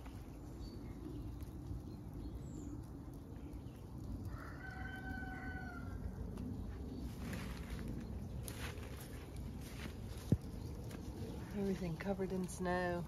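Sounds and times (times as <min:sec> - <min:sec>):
rooster crowing: 0:04.3 - 0:06.1.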